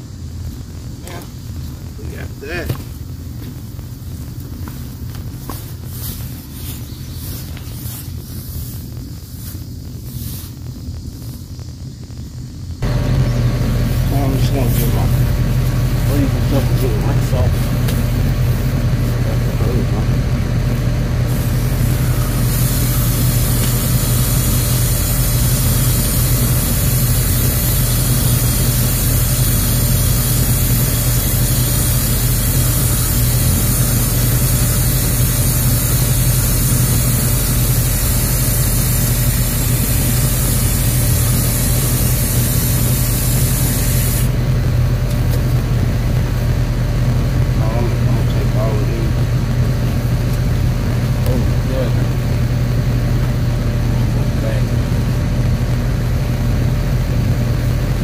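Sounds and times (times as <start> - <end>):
steady low hum: 0.0 - 58.0
hose nozzle spraying water: 21.3 - 44.3.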